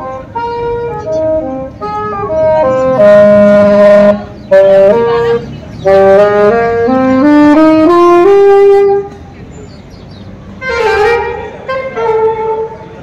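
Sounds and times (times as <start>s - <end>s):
solo wind instrument melody: 0.0s - 9.3s, 10.5s - 13.0s.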